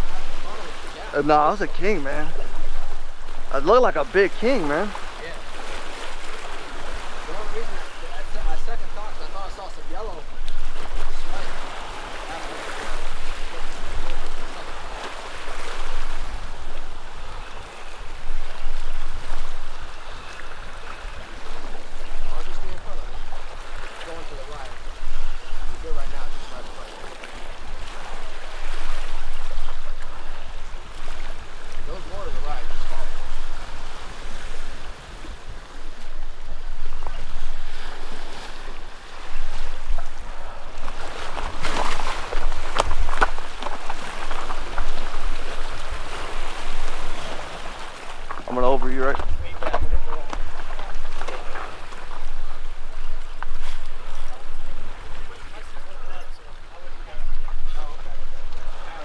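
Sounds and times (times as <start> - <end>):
surf washing against rocks: 0.0 - 59.0
wind rumbling on microphone: 0.0 - 59.0.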